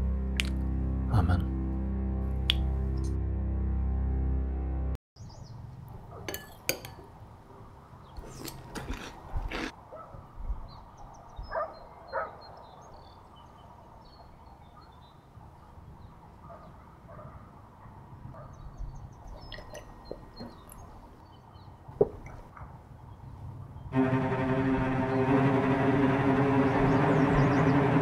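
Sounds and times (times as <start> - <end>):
small birds chirping: 5.2 - 5.6, 18.4 - 23.9, 26.7 - 27.9
spoon clinking on ceramic bowl: 6.3 - 7.0.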